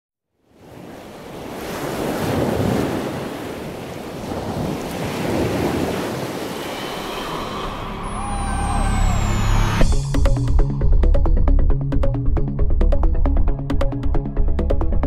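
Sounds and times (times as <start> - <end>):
sea water surging: 0.6 - 9.9.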